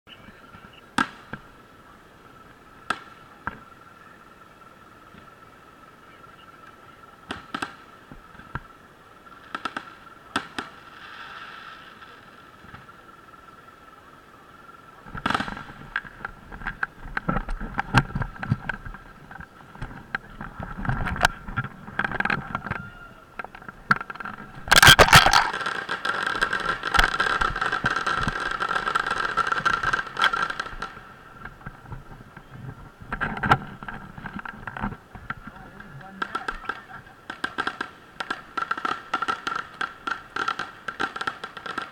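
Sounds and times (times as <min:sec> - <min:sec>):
fireworks crackling fizz: 0:07.2 - 0:13.0, 0:15.0 - 0:22.7, 0:23.3 - 0:35.5, 0:36.1 - 0:41.9.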